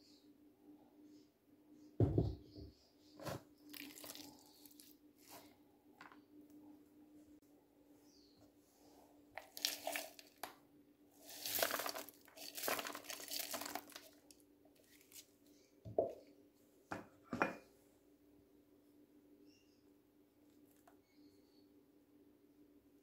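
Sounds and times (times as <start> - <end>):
faint steady hum: 3.6 - 12.3
rustling in a plastic bowl: 9.4 - 10.5, 11.2 - 15.3.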